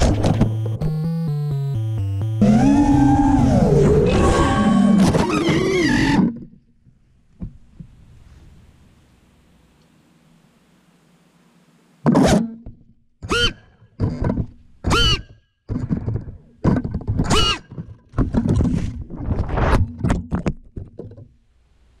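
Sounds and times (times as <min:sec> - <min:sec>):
drone motors revving: 0:00.4 - 0:06.0.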